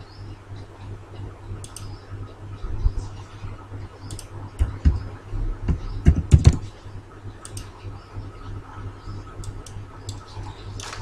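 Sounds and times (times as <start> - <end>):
steady low hum: 0.0 - 11.0
computer keyboard keystrokes: 4.0 - 5.0, 6.0 - 6.6.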